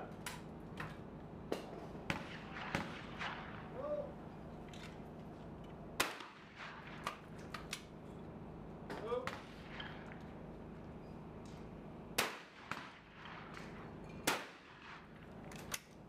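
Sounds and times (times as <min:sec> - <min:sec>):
shotgun report: 0:02.1 - 0:04.1
faint sharp gunshot cracks: 0:06.0 - 0:07.8, 0:12.2 - 0:15.0.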